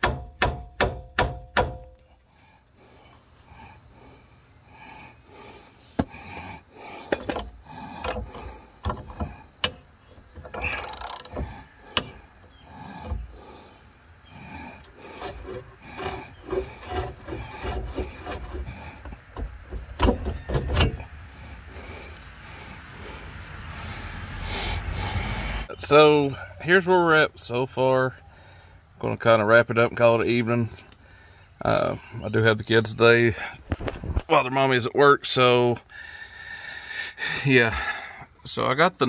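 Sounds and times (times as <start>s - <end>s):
metal knocks and taps: 0.0s - 2.0s
socket ratchet clicking: 10.6s - 11.4s.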